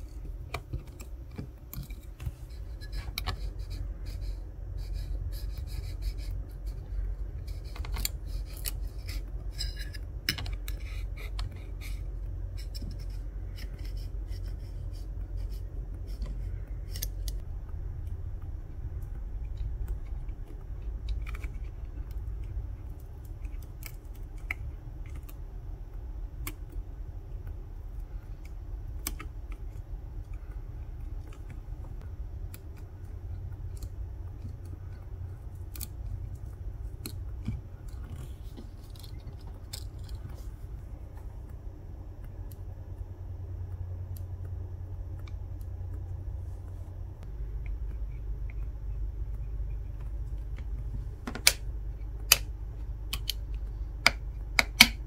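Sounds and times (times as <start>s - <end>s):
low steady rumble: 0.0s - 55.0s
metal tools clicking and scraping: 7.4s - 15.0s.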